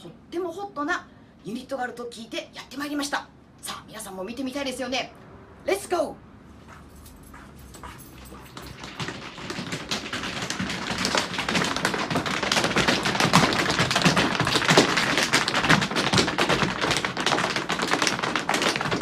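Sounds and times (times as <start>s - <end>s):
tap shoes on wooden floor: 6.7s - 19.0s.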